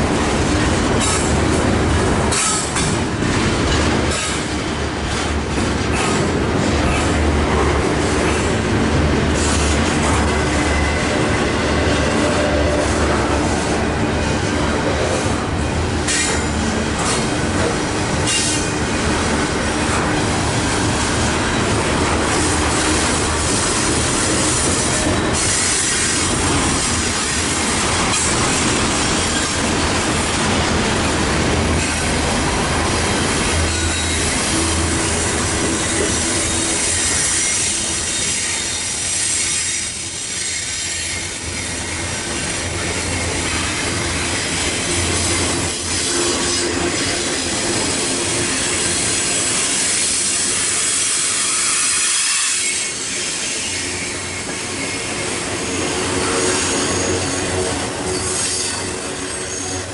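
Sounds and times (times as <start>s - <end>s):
train wheels rumbling on rail: 0.0s - 59.9s
wheel flange squeal: 33.7s - 42.1s, 55.6s - 59.9s.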